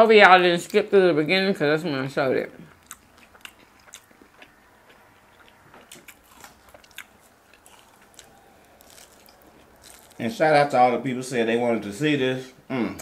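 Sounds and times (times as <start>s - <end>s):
crunchy food chewing: 2.6s - 10.3s.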